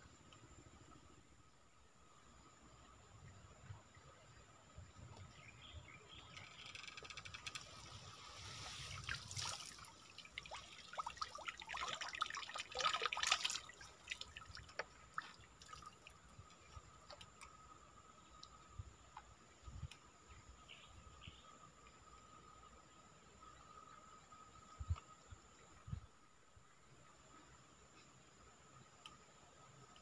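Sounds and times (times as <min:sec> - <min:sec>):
small drips and splashes: 0:07.4 - 0:17.7
water pouring and dripping: 0:07.5 - 0:17.6.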